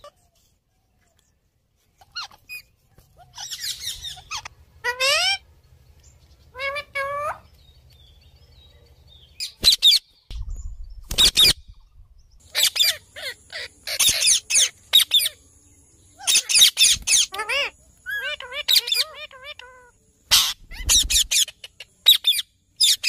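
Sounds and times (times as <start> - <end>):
parakeet chirps: 2.0 - 5.4, 9.4 - 15.4, 16.2 - 23.0
parakeets screeching: 2.0 - 5.5, 6.5 - 7.5, 11.1 - 11.6, 12.4 - 15.4, 16.2 - 23.0.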